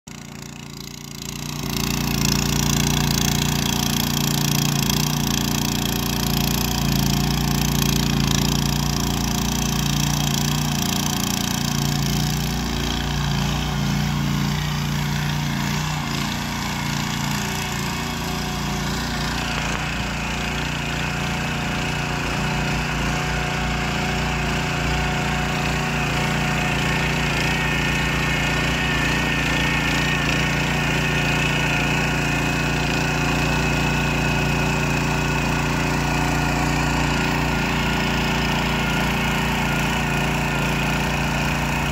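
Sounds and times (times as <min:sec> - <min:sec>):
tiller engine running under load: 0:00.0 - 0:41.9
tines churning soil: 0:00.1 - 0:41.9.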